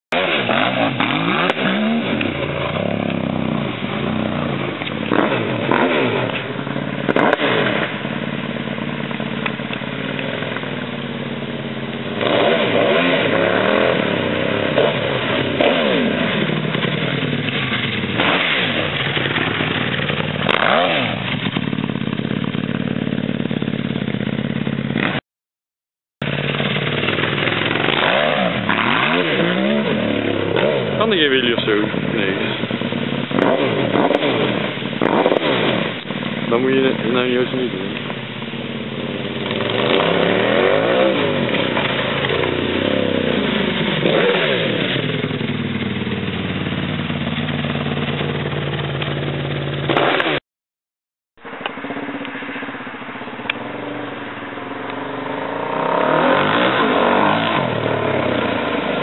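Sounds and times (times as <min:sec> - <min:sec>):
motorcycle engine revving: 0:00.1 - 0:25.2, 0:26.2 - 0:50.4, 0:51.4 - 0:59.0.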